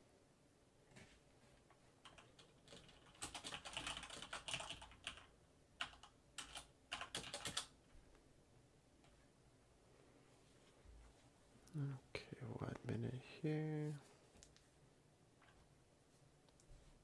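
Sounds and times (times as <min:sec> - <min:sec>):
mechanical keyboard typing: 0:02.0 - 0:07.7.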